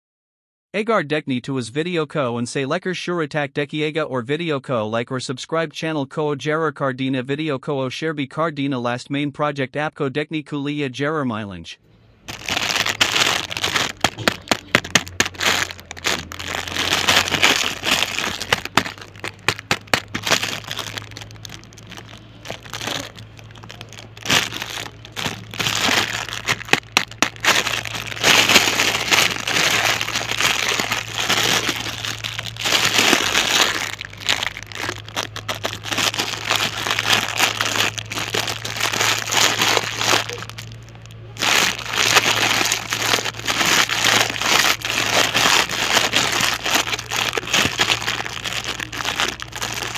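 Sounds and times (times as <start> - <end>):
low steady hum: 11.8 - 49.9
plastic bag crinkling: 12.3 - 49.9.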